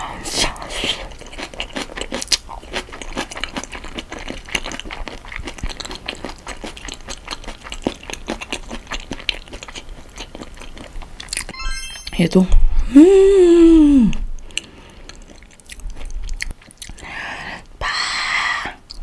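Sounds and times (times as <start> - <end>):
wet chewing with small clicks: 0.5 - 11.5, 14.4 - 17.8.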